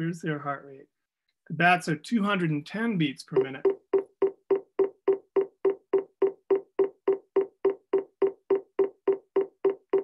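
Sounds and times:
heartbeat knocking beats: 3.4 - 10.0.

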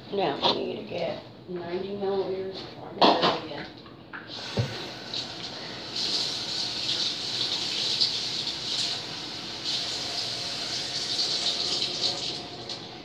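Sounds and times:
water tap running: 4.3 - 13.0.

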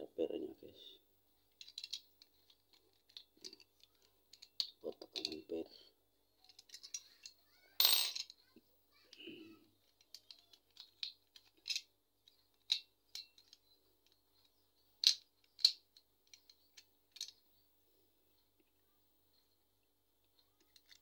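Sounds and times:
metal clatter: 1.6 - 3.6.

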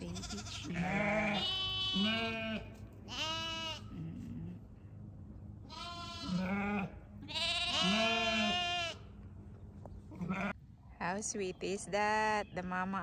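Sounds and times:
sheep bleating: 0.0 - 4.5, 5.7 - 9.1, 10.1 - 10.6.

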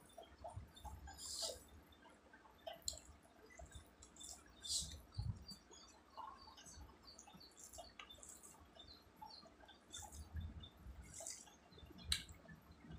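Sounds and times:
soft wet clicks: 0.2 - 12.9
quiet chewing: 9.7 - 10.4, 11.0 - 12.3
fingers working rice: 11.0 - 11.6.

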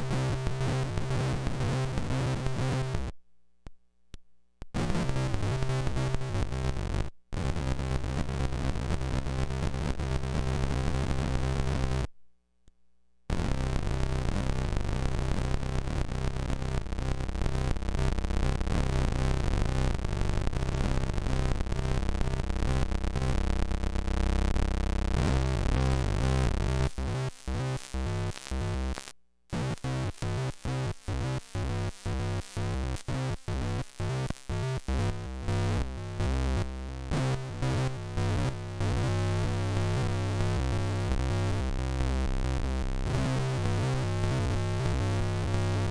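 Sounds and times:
electric guitar harsh synth-like buzz: 13.3 - 45.9.

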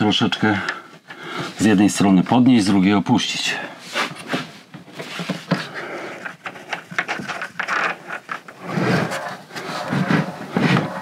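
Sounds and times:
fridge knocking and scraping: 8.5 - 11.0.

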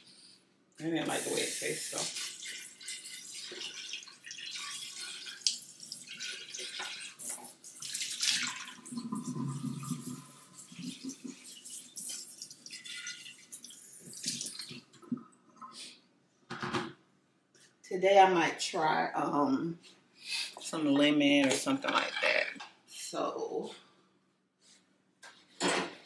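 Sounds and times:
water splashing in sink: 0.8 - 15.4.

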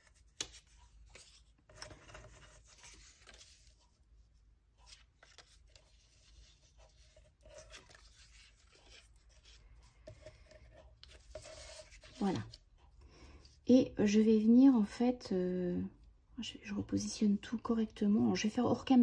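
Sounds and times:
paper rustling and sliding: 0.0 - 4.0, 4.8 - 12.6.

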